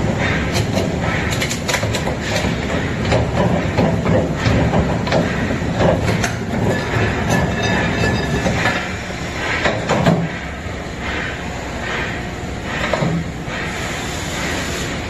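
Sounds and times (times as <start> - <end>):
machine rumble: 0.0 - 15.0
metallic clatter: 0.5 - 10.0
metal clanks: 0.5 - 10.4.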